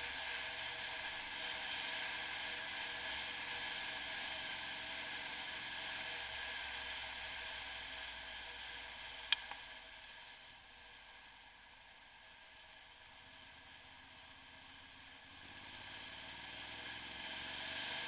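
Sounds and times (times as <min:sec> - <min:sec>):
sharp click: 0:09.3 - 0:09.6.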